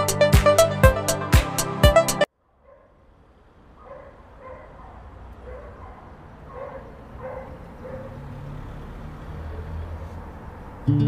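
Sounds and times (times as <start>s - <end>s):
dog barking faintly: 2.4s - 3.1s, 3.8s - 8.2s.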